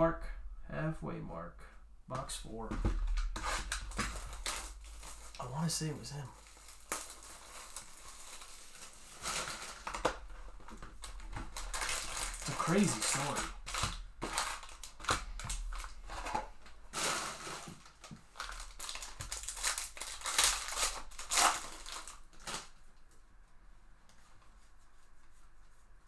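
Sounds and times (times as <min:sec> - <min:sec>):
faint handling of cards: 0:02.7 - 0:16.8
foil wrapper crinkling: 0:03.1 - 0:22.8.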